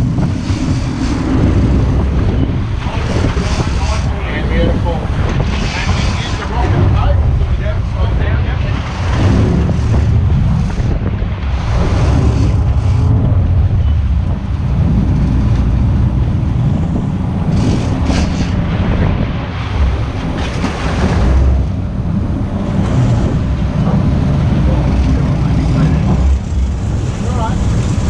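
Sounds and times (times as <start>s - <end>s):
hissing surges of water: 0.0s - 14.2s
boat engines rumbling: 0.0s - 28.0s
churning water: 0.0s - 28.0s
wind buffeting microphone: 0.0s - 28.0s.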